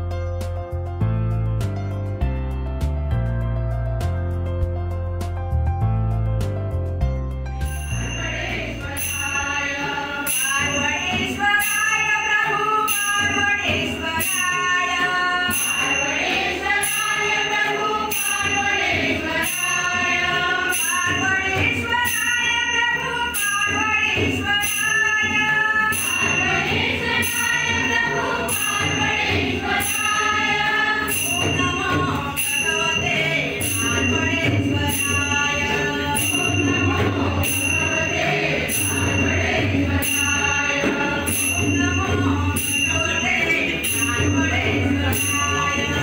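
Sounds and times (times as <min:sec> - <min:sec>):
hand cymbals struck: 0:07.6 - 0:46.0
group singing together: 0:08.0 - 0:46.0
barrel drum playing: 0:24.0 - 0:46.0.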